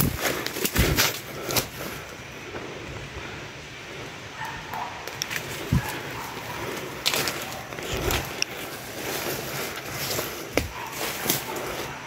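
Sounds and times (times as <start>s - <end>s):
twigs snapping: 0.0s - 1.8s, 5.0s - 12.0s
footsteps in undergrowth: 0.0s - 2.2s, 5.1s - 12.0s
rustling leaves and branches: 0.0s - 12.0s.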